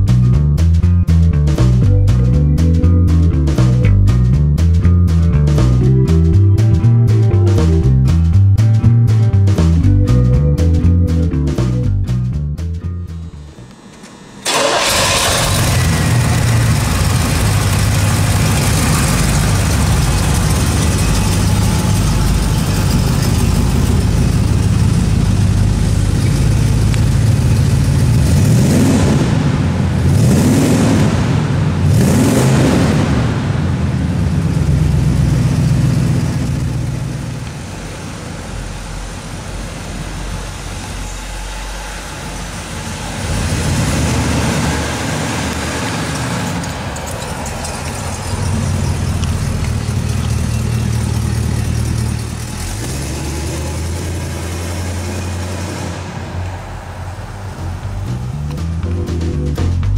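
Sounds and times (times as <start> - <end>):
car engine idling: 0.0 - 30.5, 33.3 - 59.9
engine revving: 1.5 - 59.9.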